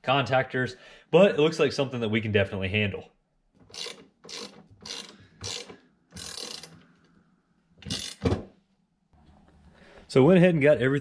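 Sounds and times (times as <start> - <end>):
ratchet wrench clicking: 3.7 - 6.8, 7.8 - 8.2.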